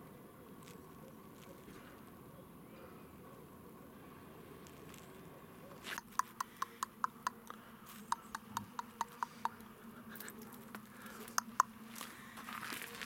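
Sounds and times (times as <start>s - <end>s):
short sharp clicks: 5.9s - 9.6s.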